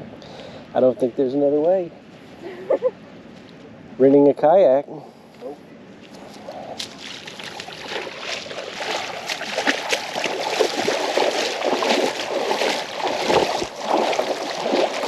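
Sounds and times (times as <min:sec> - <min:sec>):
water sloshing and splashing: 0:06.2 - 0:15.0.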